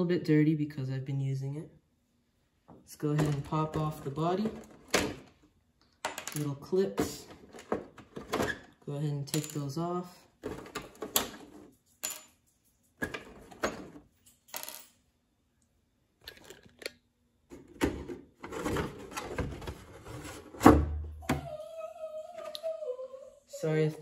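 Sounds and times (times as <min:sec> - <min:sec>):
plastic shell clattering: 0:16.2 - 0:19.7.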